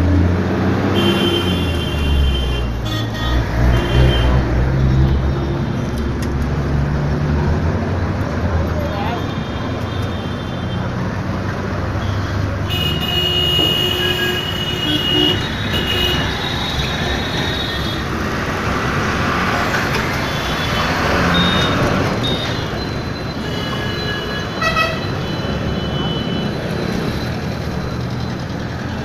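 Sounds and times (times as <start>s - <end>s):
road traffic: 0.0s - 29.0s
vehicle horns: 0.9s - 5.4s, 12.0s - 18.2s, 23.4s - 26.5s.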